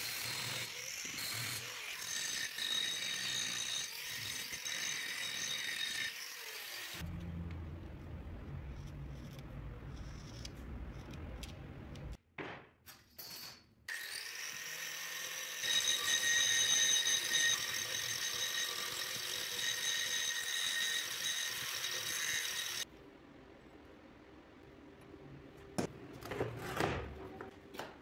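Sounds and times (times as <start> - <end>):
angle grinder grinding steel: 0.0 - 7.3, 13.9 - 22.9.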